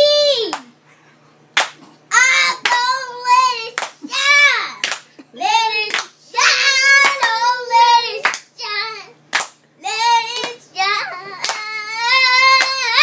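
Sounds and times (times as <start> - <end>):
child singing gospel song: 0.0 - 0.6, 2.1 - 9.2, 9.8 - 13.0
hand claps: 1.6 - 1.9, 2.6 - 2.9, 3.8 - 4.1, 4.8 - 5.1, 5.8 - 6.2, 7.0 - 7.4, 8.2 - 8.5, 9.3 - 9.6, 10.3 - 10.6, 11.4 - 11.7, 12.4 - 12.9.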